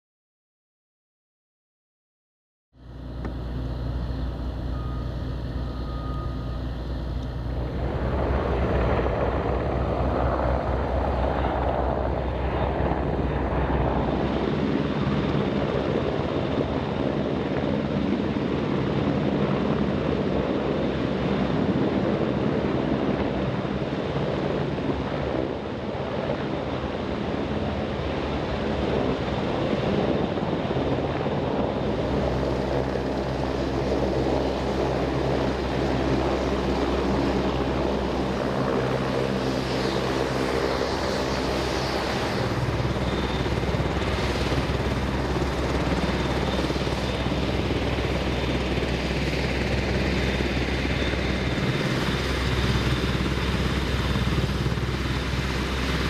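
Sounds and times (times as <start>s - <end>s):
helicopter rotors and engines: 2.8s - 56.0s.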